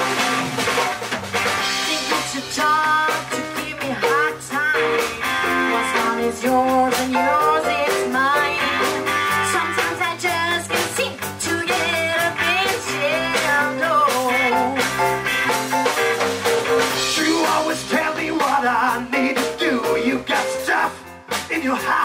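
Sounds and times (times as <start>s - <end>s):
live band playing: 0.0s - 22.0s
woman singing into a microphone: 1.7s - 14.8s.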